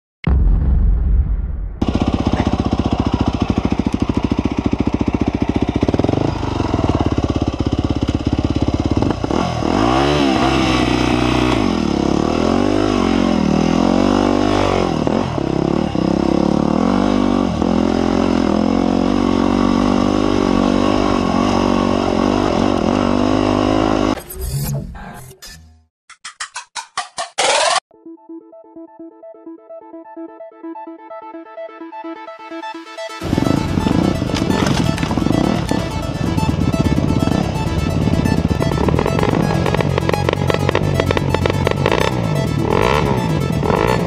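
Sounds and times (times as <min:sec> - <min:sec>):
dirt bike engine revving: 0:01.8 - 0:24.2, 0:33.2 - 0:44.0.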